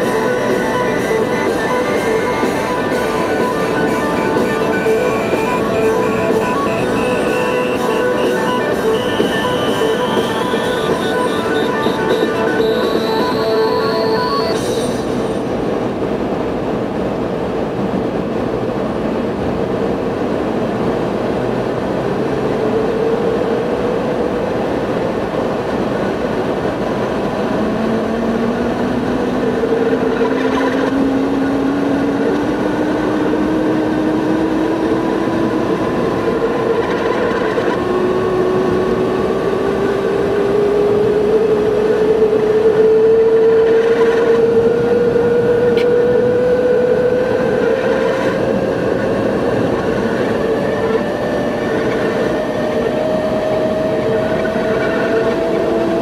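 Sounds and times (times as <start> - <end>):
humming tone rising in pitch: 0.0 - 15.5
engine hum: 0.0 - 56.0.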